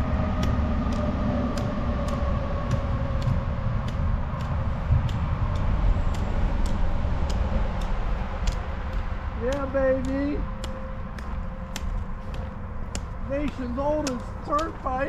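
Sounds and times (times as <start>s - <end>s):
highway traffic rumble: 0.0s - 15.0s.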